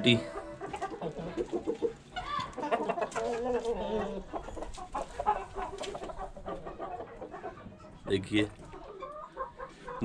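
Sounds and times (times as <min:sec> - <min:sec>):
roosters clucking: 0:00.0 - 0:10.0.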